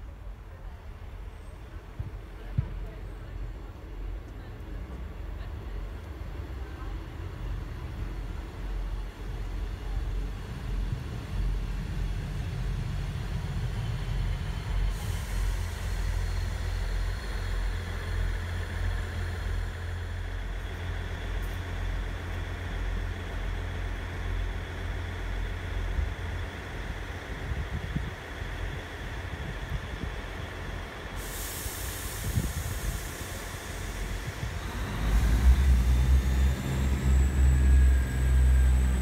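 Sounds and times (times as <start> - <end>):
diesel train engines rumbling: 0.0 - 39.0
brake air hiss: 14.6 - 20.5, 31.0 - 35.5.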